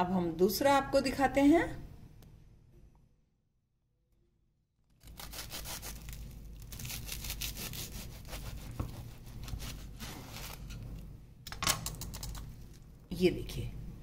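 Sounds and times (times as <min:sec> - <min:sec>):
knife sawing through toast: 0:05.0 - 0:06.2, 0:06.8 - 0:10.6.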